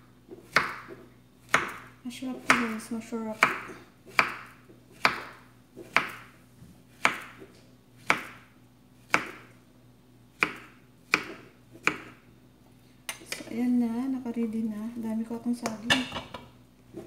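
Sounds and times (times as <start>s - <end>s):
knife slicing banana: 3.4s - 6.3s, 9.1s - 9.5s.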